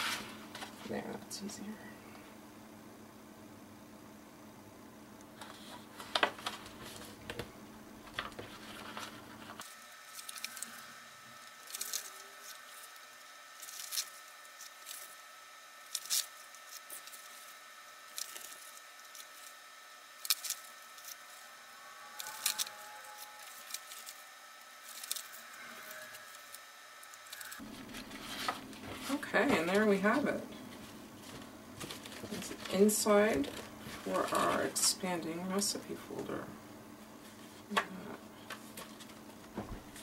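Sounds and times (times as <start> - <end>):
low background hum: 0.0 - 40.0
paper rustling and crinkling: 5.4 - 7.5, 8.1 - 15.2, 15.8 - 21.4, 22.2 - 26.6, 27.2 - 30.0, 30.7 - 34.9, 38.4 - 40.0
tape liner peeling: 8.8 - 15.2, 15.8 - 19.6, 20.2 - 21.4, 22.2 - 28.8.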